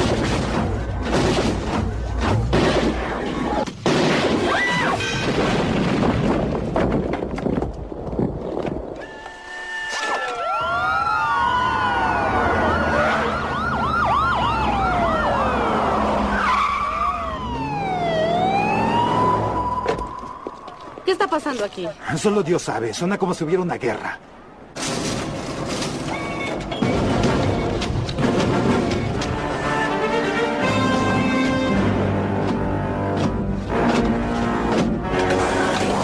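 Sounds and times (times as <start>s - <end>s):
crashes and impacts: 0.0s - 8.8s, 24.8s - 30.0s
police sirens wailing and yelping: 9.0s - 21.1s.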